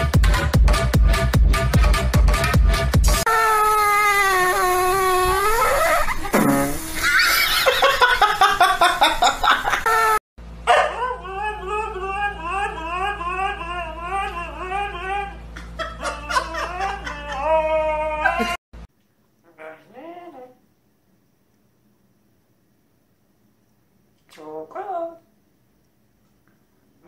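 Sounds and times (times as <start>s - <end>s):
dog howling: 10.7s - 18.6s
dog yowling: 10.7s - 18.6s.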